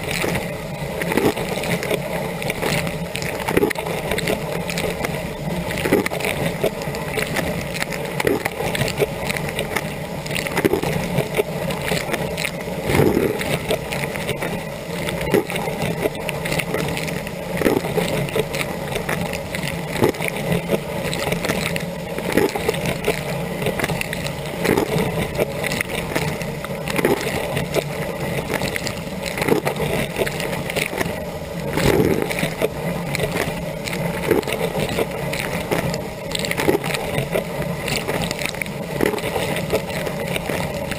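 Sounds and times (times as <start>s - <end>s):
dishwasher pump hum: 0.0s - 40.9s.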